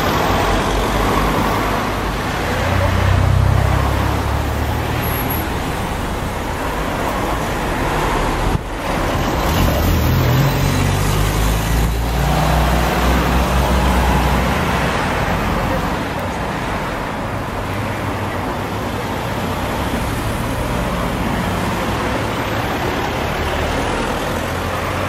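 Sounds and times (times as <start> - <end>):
cars driving past: 0.0 - 25.0.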